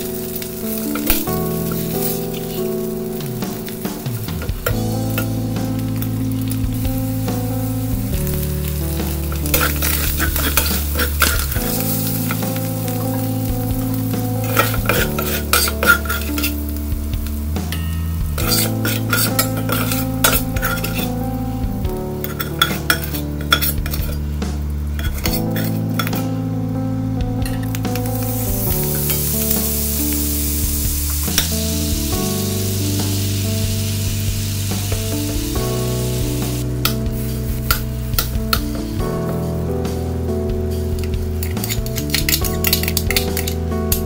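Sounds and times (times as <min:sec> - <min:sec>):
utensil stirring and scraping pan: 0:00.0 - 0:16.8, 0:18.4 - 0:21.3, 0:22.2 - 0:24.2, 0:25.0 - 0:26.3, 0:41.0 - 0:43.6
food sizzling in a pan: 0:00.0 - 0:26.6, 0:27.4 - 0:44.0
soft background music: 0:00.0 - 0:44.0
utensil clinking against pan: 0:14.4 - 0:16.6, 0:18.5 - 0:21.1, 0:22.2 - 0:24.2.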